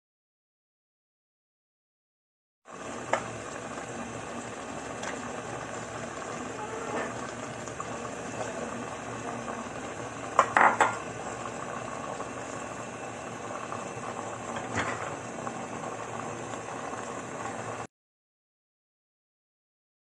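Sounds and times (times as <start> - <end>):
pot simmering bubbling: 2.7 - 17.9
knocks on metal pot: 10.4 - 11.0.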